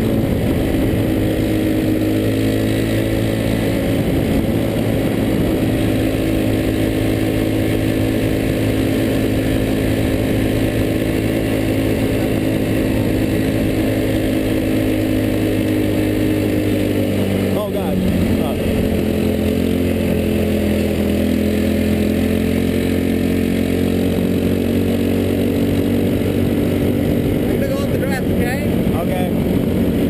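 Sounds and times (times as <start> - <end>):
go-kart engine running: 0.0 - 30.0.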